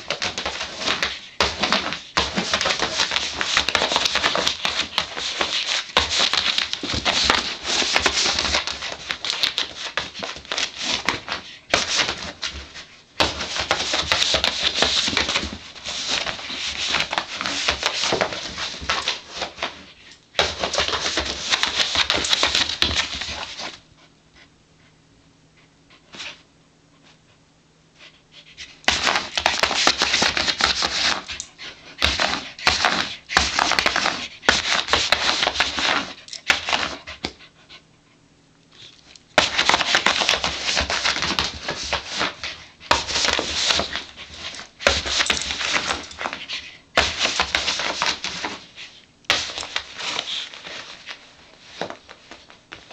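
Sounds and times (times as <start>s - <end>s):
dog panting: 36.2s - 38.9s.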